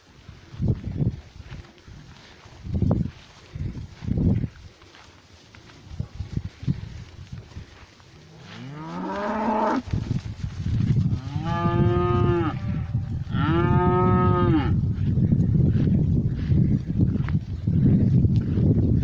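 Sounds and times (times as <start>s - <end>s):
cattle mooing: 8.4s - 9.8s, 11.2s - 14.8s.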